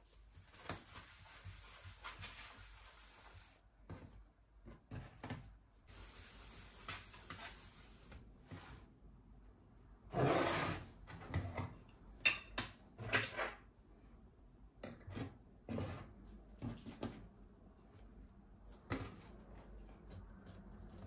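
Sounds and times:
rubbing and rustling: 0.0 - 3.6.

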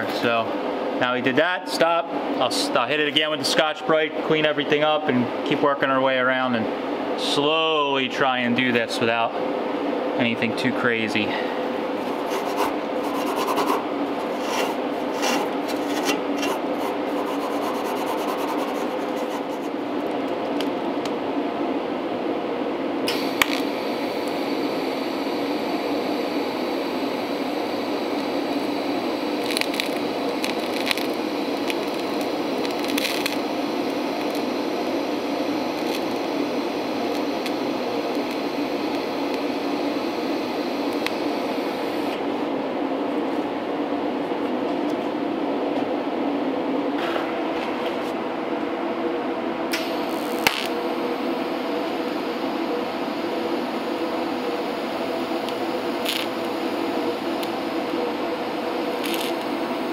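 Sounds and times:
steady low hum: 0.0 - 59.9
scouring pad rubbing metal: 12.1 - 19.7
welding arc click: 23.1 - 24.4, 29.4 - 34.5, 35.8 - 36.3, 37.0 - 39.5, 40.8 - 41.3, 49.7 - 50.8, 55.5 - 56.5, 57.4 - 57.6, 59.0 - 59.5
welding arc hiss: 23.1 - 42.2, 49.7 - 59.9.

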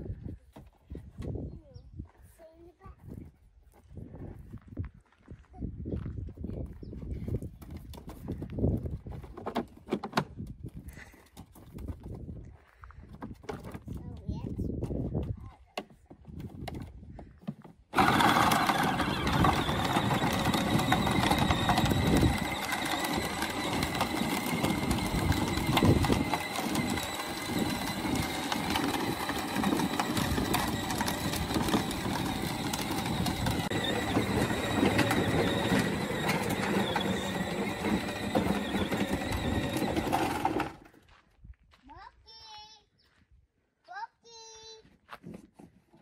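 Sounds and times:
motor whining: 17.9 - 40.8
wheels crunching on gravel: 17.9 - 42.0.

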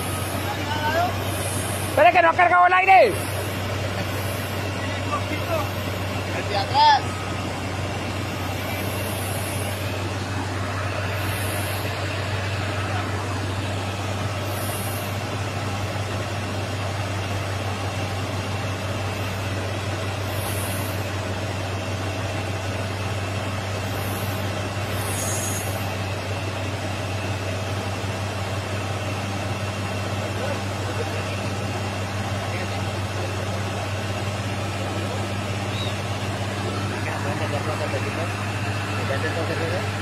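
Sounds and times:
diesel truck engine idling: 0.0 - 40.0
air brake hisses: 11.1 - 12.0, 14.4 - 15.2, 20.3 - 21.1, 23.9 - 25.9.

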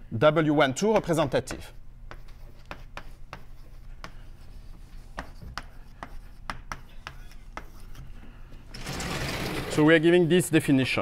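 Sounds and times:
chalk tapping and scratching: 1.0 - 8.2.

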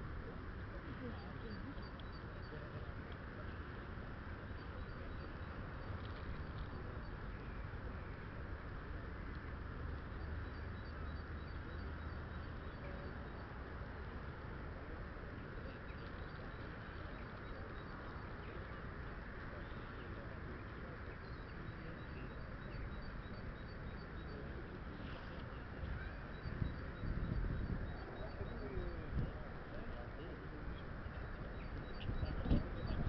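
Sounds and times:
faint high rapid chirping: 1.0 - 2.9, 4.5 - 8.2, 9.8 - 14.0, 15.6 - 33.0
wind buffeting microphone: 25.8 - 29.6, 30.9 - 33.0.

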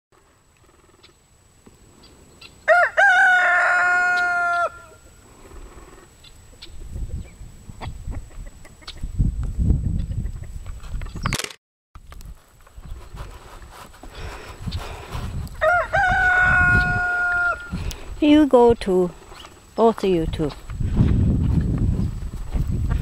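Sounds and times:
rooster crowing: 2.6 - 5.1, 15.6 - 17.8.

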